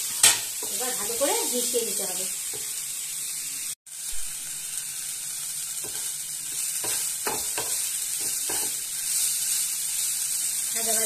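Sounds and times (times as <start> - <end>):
vegetables sizzling in a pan: 0.0 - 11.0
wooden spatula scraping a pan: 5.8 - 10.1.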